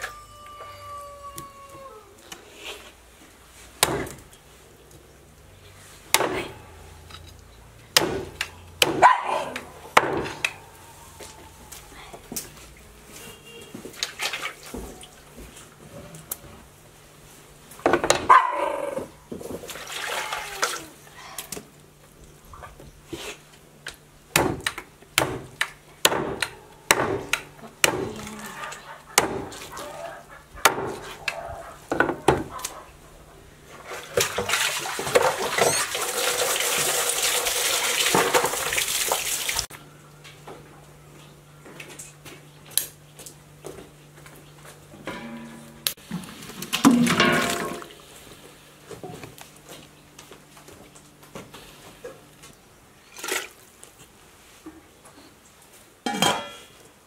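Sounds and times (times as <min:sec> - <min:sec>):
water running: 0:33.9 - 0:39.7
kitchen knocks and clatters: 0:46.7 - 0:47.9, 0:56.1 - 0:56.7.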